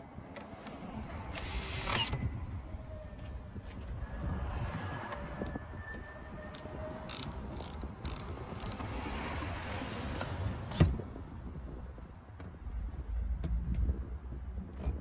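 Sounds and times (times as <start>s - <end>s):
bike rack scraping clicks: 6.5s - 8.8s.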